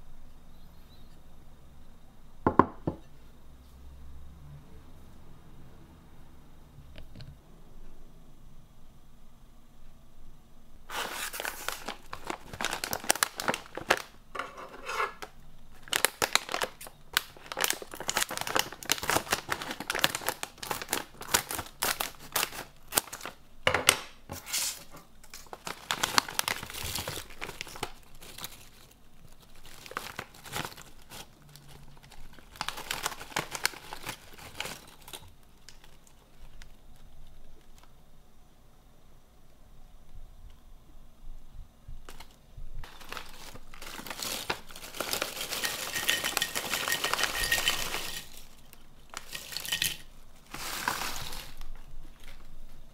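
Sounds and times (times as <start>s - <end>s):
plastic snack packet crinkling: 10.9s - 14.3s, 15.2s - 23.4s, 24.5s - 38.0s, 42.0s - 52.9s.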